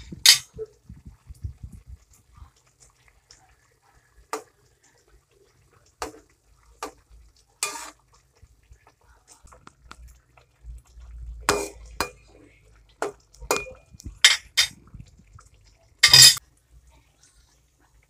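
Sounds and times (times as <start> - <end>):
metal spatula scraping a wok: 7.6 - 8.0, 16.0 - 16.4.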